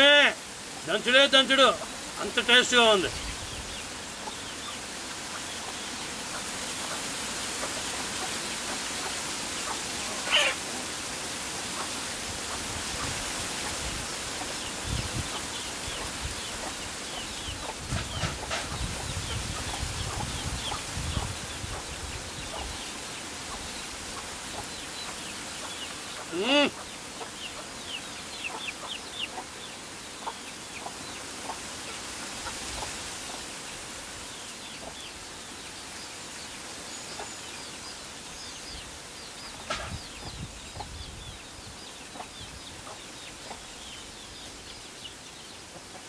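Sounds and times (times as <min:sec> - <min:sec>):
small birds chirping: 0:00.0 - 0:46.0
steady outdoor hiss: 0:00.0 - 0:46.0
chicken call: 0:10.1 - 0:10.7, 0:26.3 - 0:26.8.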